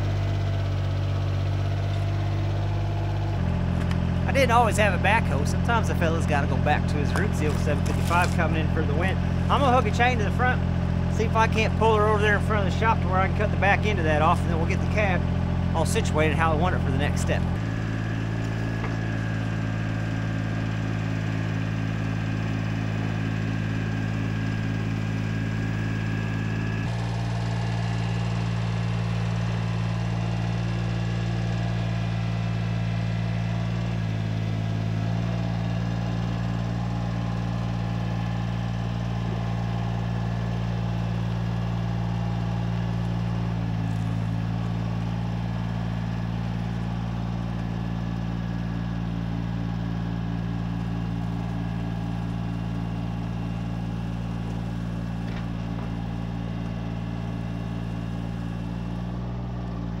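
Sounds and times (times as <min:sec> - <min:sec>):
tractor diesel engine running: 0:00.0 - 1:00.0.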